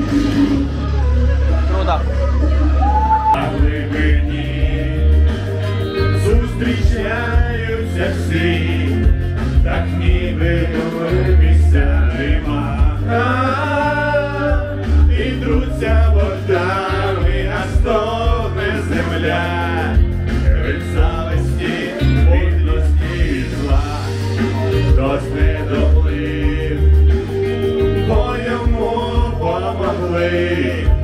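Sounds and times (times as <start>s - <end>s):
backing track with heavy bass: 0.0s - 31.0s
man singing karaoke: 3.2s - 31.0s.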